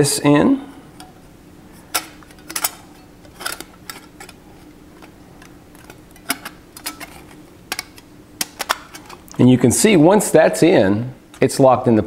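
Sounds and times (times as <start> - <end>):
metal panels clinking: 1.8 - 9.4.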